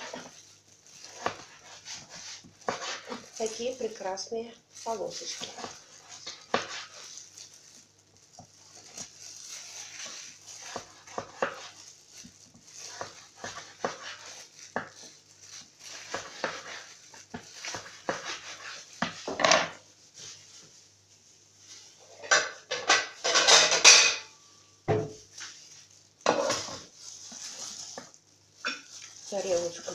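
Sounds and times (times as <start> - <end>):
knife cutting on cutting board: 1.1 - 3.2, 12.9 - 14.3.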